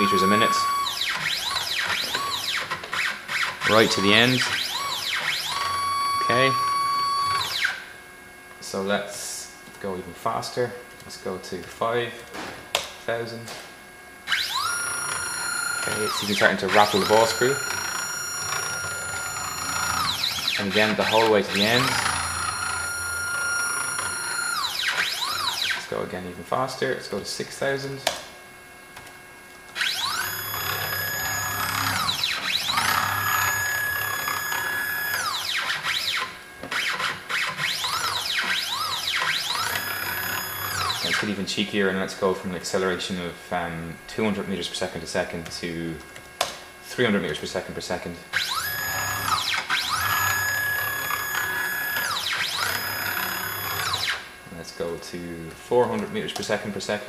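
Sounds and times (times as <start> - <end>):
stepper motor whine: 0.0 - 9.4, 14.2 - 26.4, 29.7 - 45.2, 48.3 - 54.4.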